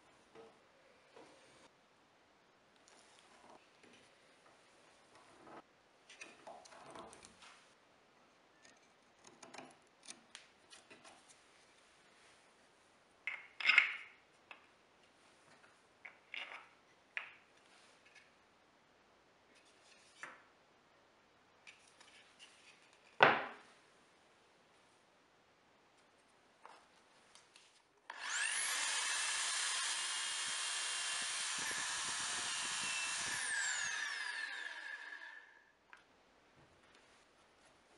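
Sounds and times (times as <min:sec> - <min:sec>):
wooden parts knocking on workbench: 0:23.2 - 0:23.6.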